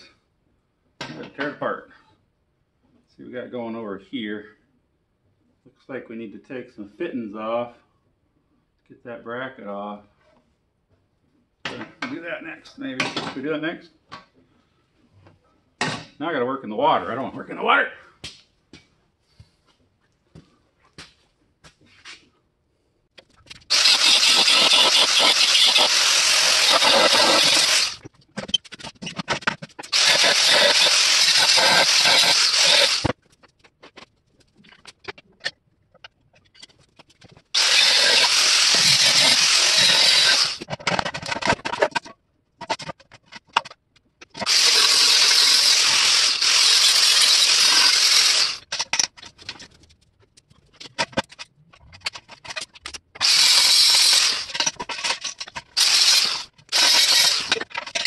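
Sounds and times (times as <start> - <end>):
angle grinder cutting steel: 23.7 - 28.0, 29.8 - 33.1, 37.6 - 40.7, 44.4 - 48.7, 53.2 - 58.0.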